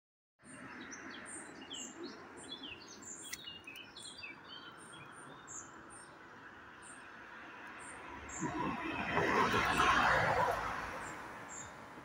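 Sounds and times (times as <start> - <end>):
small birds chirping: 0.4 - 9.1, 11.0 - 11.9.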